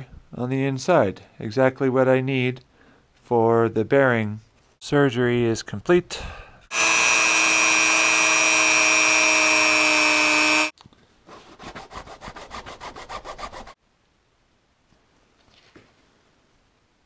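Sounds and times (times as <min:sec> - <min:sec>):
rotary tool whining: 0:06.7 - 0:10.7
file scraping rubber: 0:11.3 - 0:13.8.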